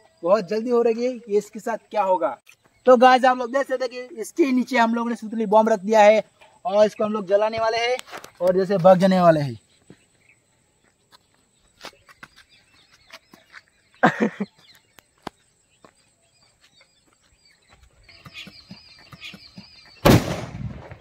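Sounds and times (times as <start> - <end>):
firecracker bang: 20.0 - 21.0.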